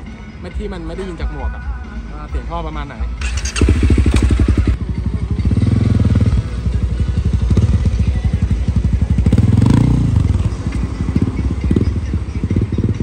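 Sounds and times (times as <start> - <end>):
motorcycle engine revving: 3.2 - 13.0.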